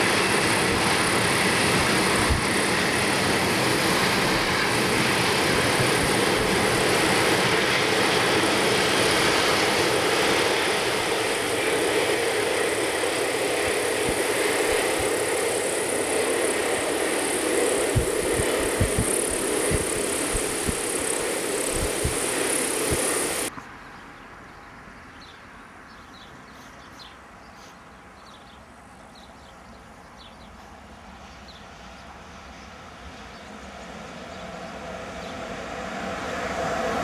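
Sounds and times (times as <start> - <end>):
freight train wheels rumbling: 0.0 - 23.5.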